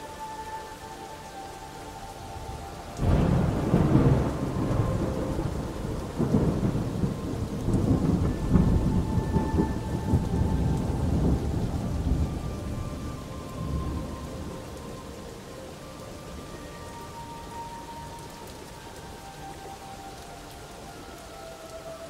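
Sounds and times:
steady rain: 0.0s - 22.0s
thunder rolling: 3.0s - 13.1s.

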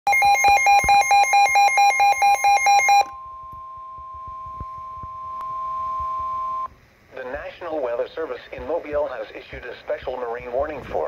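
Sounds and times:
steady warning alarm tone: 0.1s - 6.7s.

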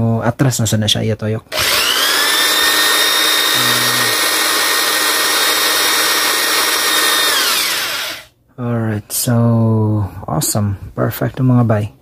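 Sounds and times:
electric drill whining: 1.5s - 8.3s.

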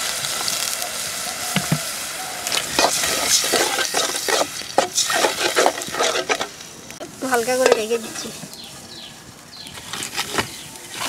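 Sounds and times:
water poured into hissing pot: 0.0s - 6.6s
metal spatula scraping pot: 2.7s - 6.6s.

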